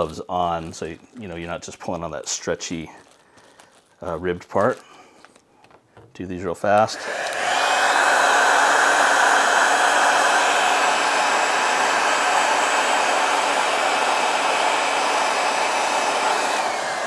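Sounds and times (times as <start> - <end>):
hot-air blower running: 6.9 - 17.0.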